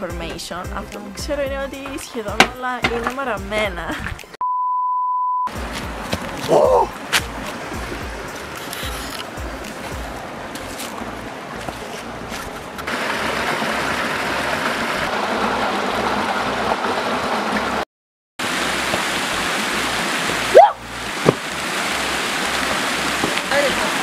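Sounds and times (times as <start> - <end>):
stream rushing over rocks: 5.5 - 17.8, 18.4 - 24.0.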